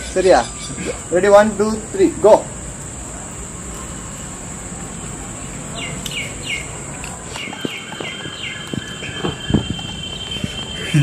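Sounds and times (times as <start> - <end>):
bird chirping: 0.0 - 1.6, 5.3 - 11.0
insects droning: 0.0 - 11.0.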